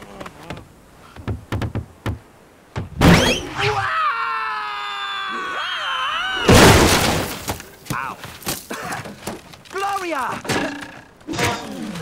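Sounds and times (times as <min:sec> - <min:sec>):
cartoon character screaming: 0:03.6 - 0:06.6.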